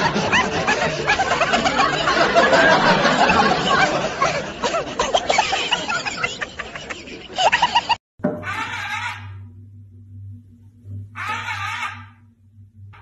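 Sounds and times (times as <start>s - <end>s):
people chattering: 0.0s - 8.0s
people laughing: 0.0s - 8.0s.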